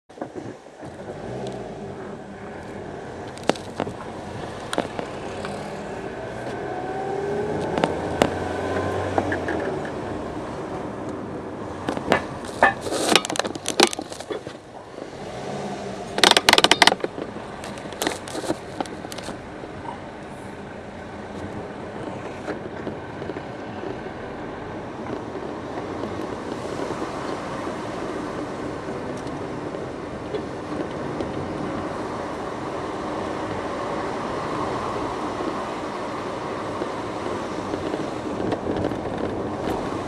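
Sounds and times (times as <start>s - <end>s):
car engine and road noise: 0.1s - 40.0s
sharp rattling clicks: 16.2s - 19.4s.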